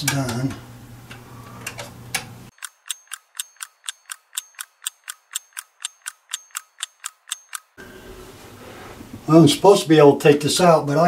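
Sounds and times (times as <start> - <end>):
regular mechanical ticking: 1.1 - 7.8.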